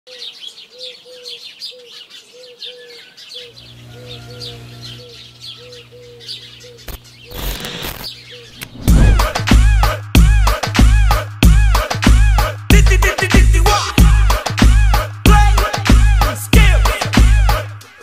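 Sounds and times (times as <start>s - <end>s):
birds chirping: 0.1s - 9.1s
noisy whoosh: 8.6s - 9.7s.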